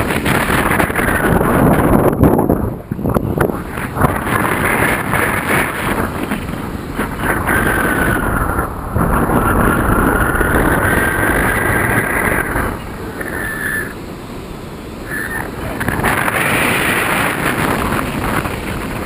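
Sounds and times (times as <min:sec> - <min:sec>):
wind buffeting microphone: 0:00.0 - 0:19.0
thin whistling tone: 0:13.2 - 0:14.0, 0:15.0 - 0:15.5.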